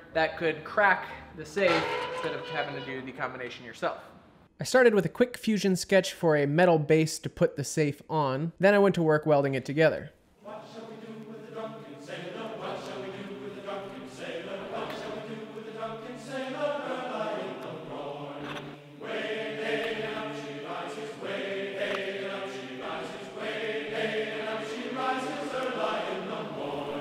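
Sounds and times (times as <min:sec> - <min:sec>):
choir-like sustained chords: 0:01.7 - 0:03.3, 0:10.4 - 0:27.0.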